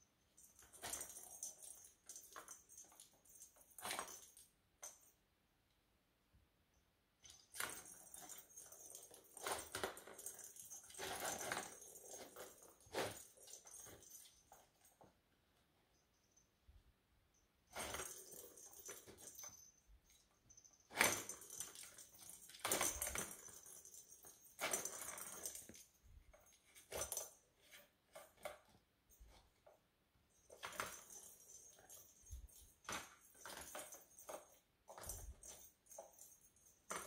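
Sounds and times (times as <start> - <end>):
plastic toy rattling: 20.9 - 25.8.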